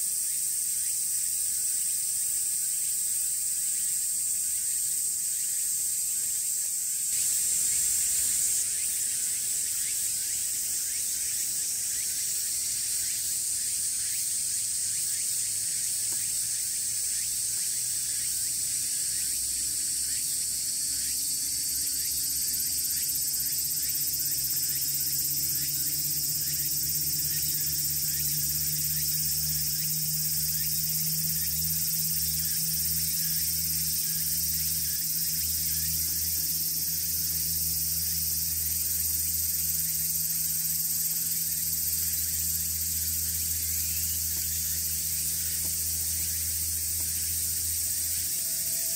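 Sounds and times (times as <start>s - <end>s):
cicadas droning: 0.0s - 48.9s
faint low hum: 21.3s - 48.9s.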